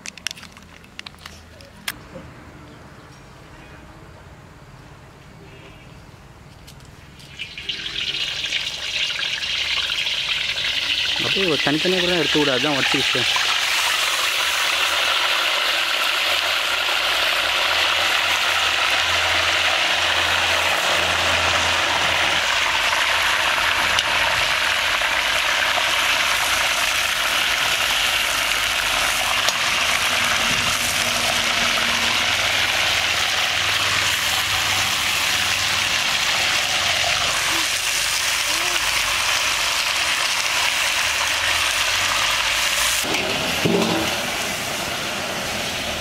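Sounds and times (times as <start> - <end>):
chicken sizzling in hot fat: 7.3 - 46.0
metal spoon knocking pan: 43.1 - 44.3.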